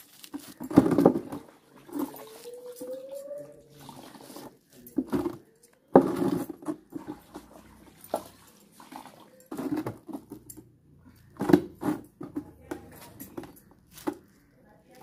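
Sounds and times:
wet laundry slapping in a tub: 7.2s - 10.1s.

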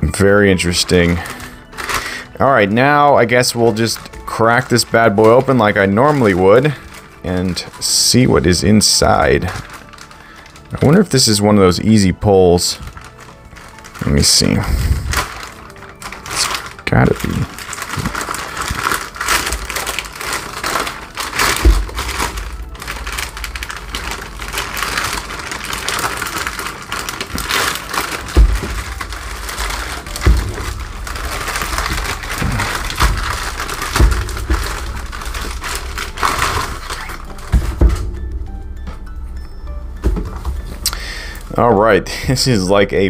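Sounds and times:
plastic bag crinkling: 0.0s - 43.0s
package dull thumps: 15.1s - 39.2s.

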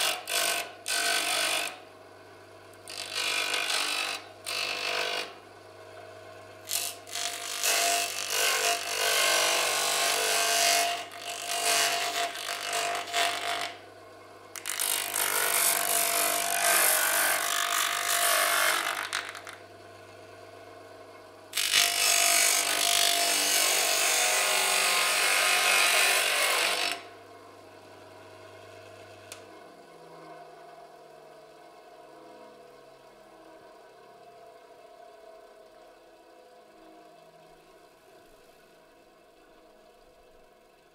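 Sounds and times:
bench grinder motor humming: 0.0s - 1.8s, 2.7s - 13.9s, 14.5s - 27.2s
metal grinding on wheel: 6.7s - 13.8s, 14.6s - 19.6s, 21.6s - 27.0s.

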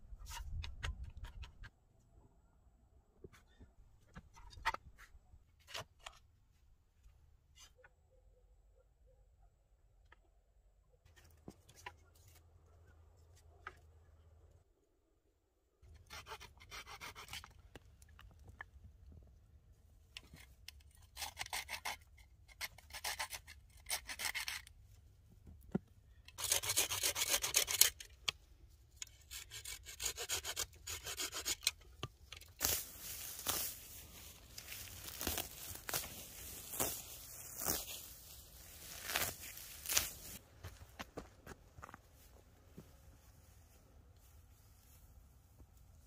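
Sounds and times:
dry branches rasping and rustling: 29.1s - 40.4s
dry grass pulled up by hand: 32.3s - 40.9s.

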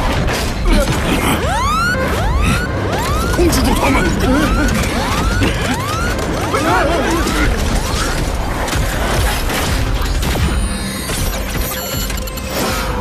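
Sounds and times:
mechanical clicking and clanking: 3.0s - 12.8s.

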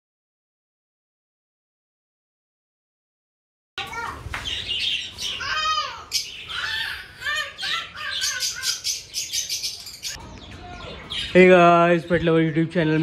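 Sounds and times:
budgerigars chirping and chattering: 4.4s - 13.0s.

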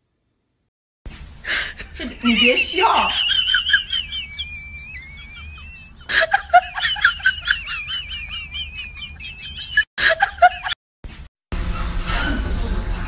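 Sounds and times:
whale whistling and chirping: 3.9s - 6.1s.

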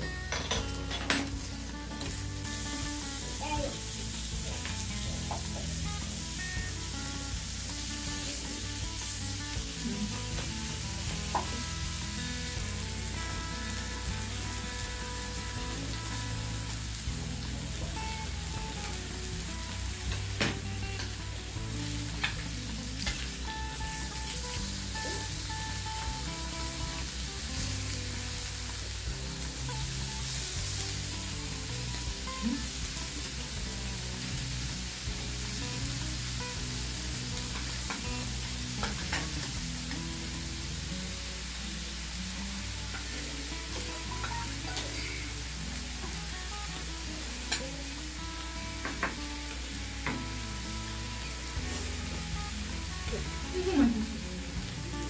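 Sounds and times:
beef sizzling on grill pan: 0.0s - 55.0s
chopsticks and tongs tapping pan: 11.3s - 11.6s.

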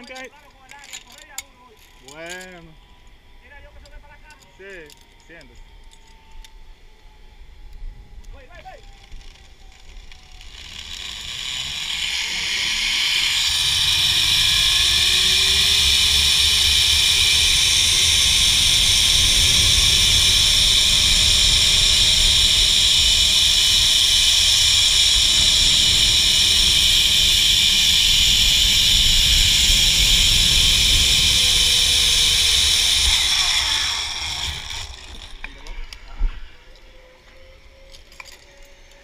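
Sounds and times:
zipline pulleys whirring on cables: 0.0s - 39.0s
wind rumbling on microphone: 6.7s - 36.6s.

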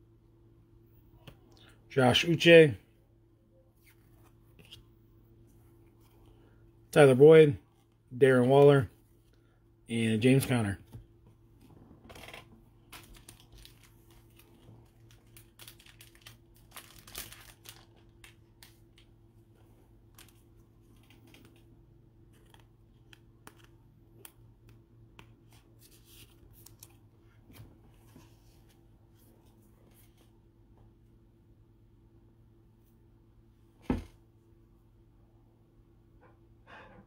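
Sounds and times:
steady low hum: 0.0s - 37.0s
trading cards rustling: 12.1s - 19.2s, 20.0s - 24.4s, 25.2s - 28.2s.

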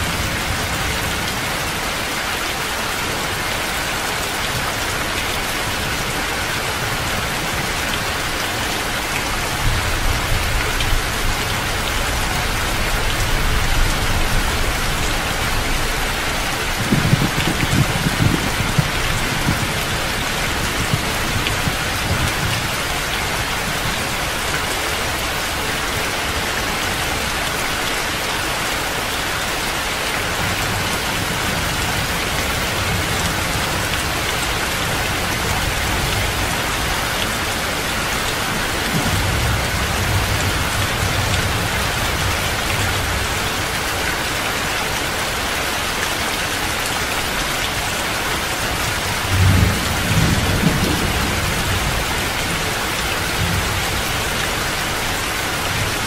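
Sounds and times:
heavy rain hissing: 0.0s - 56.0s
thunder rumbling: 12.7s - 24.0s, 49.2s - 52.7s.

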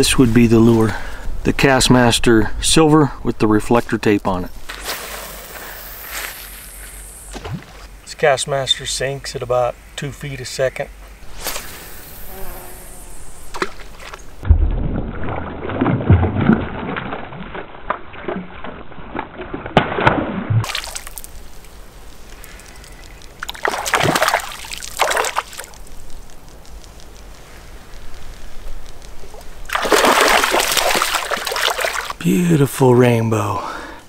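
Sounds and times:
fish splashing at water surface: 14.9s - 21.4s, 22.5s - 25.8s, 29.7s - 32.2s.

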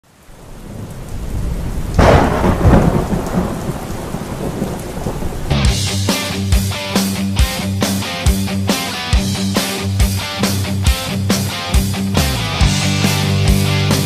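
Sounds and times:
steady rain: 0.0s - 14.0s
loud thunderclap rumbling: 0.4s - 6.1s
music: 5.5s - 14.0s.

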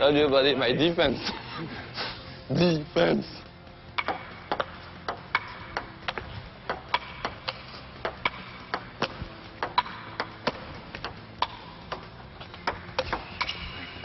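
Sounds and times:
ping pong ball clicking: 4.0s - 13.6s.

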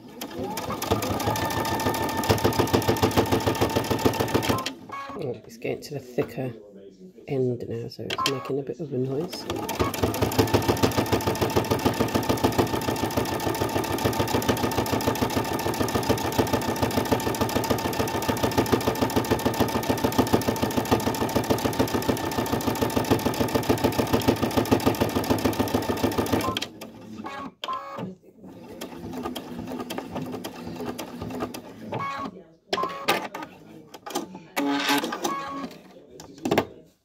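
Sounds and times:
sewing machine stitching: 0.0s - 5.2s, 9.2s - 35.8s.

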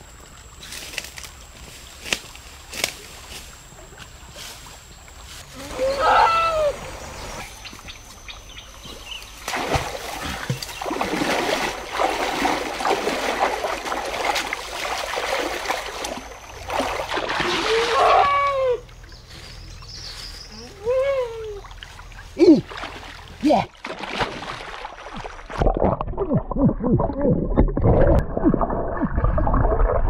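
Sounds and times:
river water splashing: 2.0s - 25.9s.

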